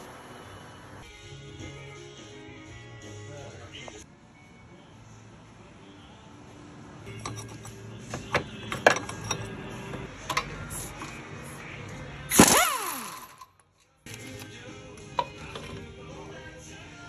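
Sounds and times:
metal socket clinks: 8.7 - 9.6
impact wrench burst: 12.3 - 13.5
motor falling whine: 12.3 - 13.5.

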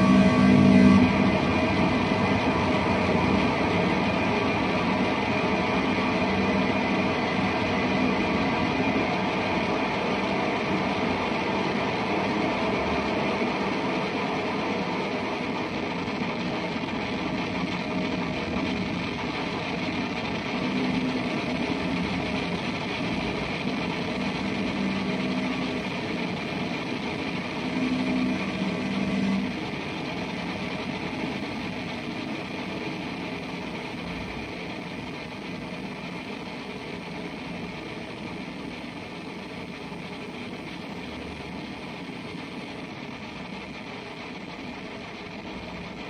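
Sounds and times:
low held guitar tones: 0.0 - 10.1
distorted electric guitar drone: 0.0 - 46.0.

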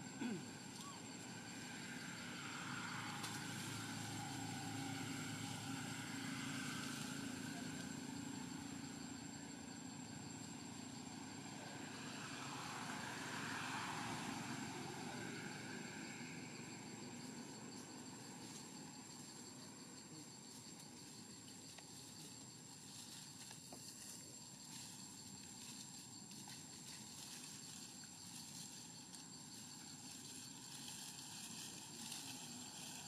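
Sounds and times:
distant traffic hum: 0.0 - 24.0.

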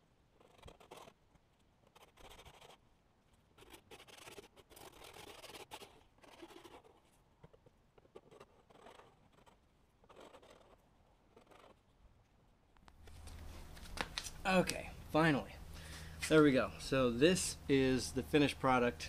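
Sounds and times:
hand file scratching plastic: 0.4 - 1.2, 1.8 - 2.8, 3.6 - 11.8.

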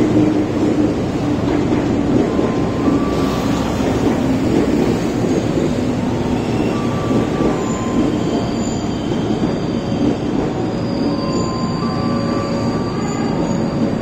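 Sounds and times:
train wheels rumbling on rails: 0.0 - 14.0
wheels squealing: 2.2 - 14.0.

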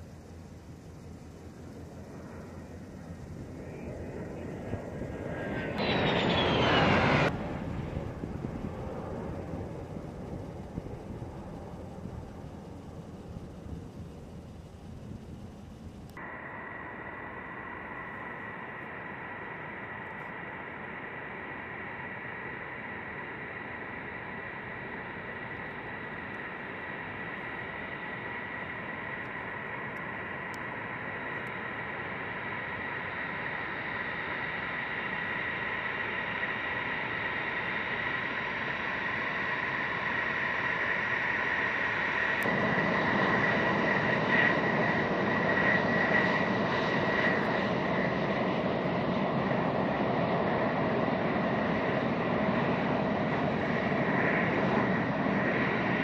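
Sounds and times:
jet engines whining: 0.0 - 56.0.

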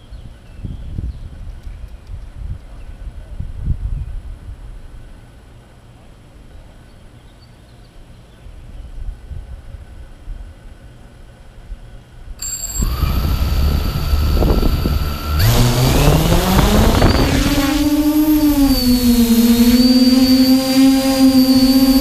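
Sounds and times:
wind rumble on microphone: 0.0 - 5.2, 8.5 - 10.7, 12.8 - 22.0
drone motors spinning up: 12.4 - 22.0
high electronic whine: 12.4 - 22.0.

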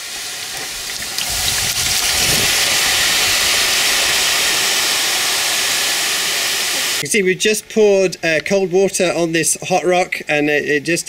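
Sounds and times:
water hissing on hot rock: 0.0 - 7.0.

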